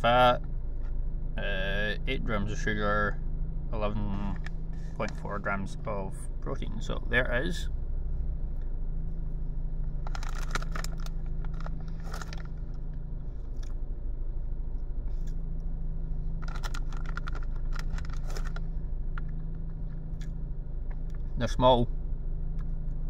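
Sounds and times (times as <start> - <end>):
low hum in car cabin: 0.0 - 23.0
crunching and crackling: 10.0 - 13.8, 16.4 - 21.3.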